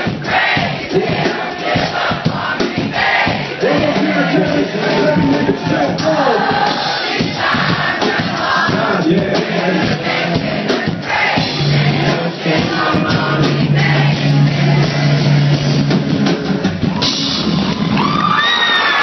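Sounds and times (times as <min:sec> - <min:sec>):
crowd shouting: 0:00.0 - 0:15.3, 0:16.7 - 0:19.0
live rap music: 0:00.0 - 0:17.8.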